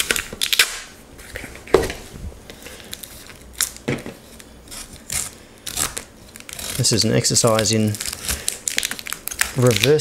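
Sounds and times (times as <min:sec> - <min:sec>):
packaging crinkling and rustling: 0:06.0 - 0:10.0.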